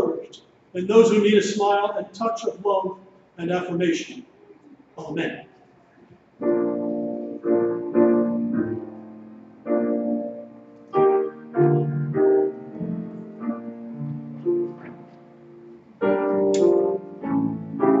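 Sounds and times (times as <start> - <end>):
piano playing slow chords: 6.4 - 18.0.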